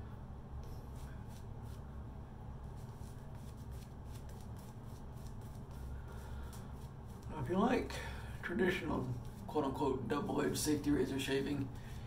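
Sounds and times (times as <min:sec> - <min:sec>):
low steady hum: 0:00.0 - 0:12.0
shaving brush strokes on stubble: 0:00.6 - 0:01.9, 0:02.6 - 0:07.6.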